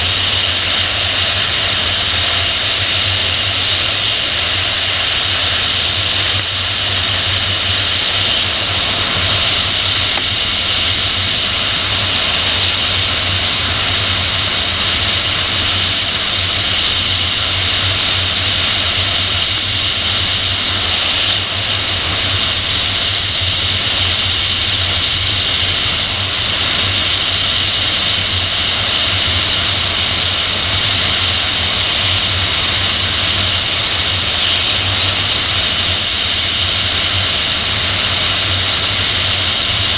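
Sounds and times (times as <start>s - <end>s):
airflow rushing hiss: 0.0s - 39.9s.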